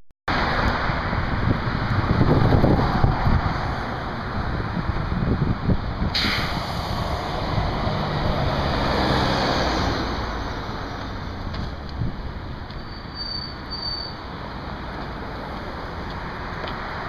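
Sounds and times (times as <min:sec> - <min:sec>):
traffic hiss: 0:06.1 - 0:08.4
vehicle passing: 0:06.6 - 0:12.6.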